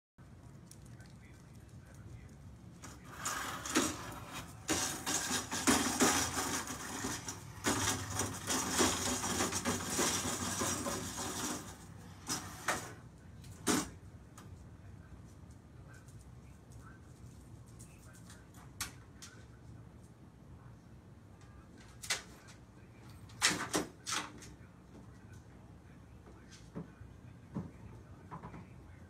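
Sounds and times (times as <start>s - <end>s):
chair legs scraping on concrete: 2.8s - 13.0s.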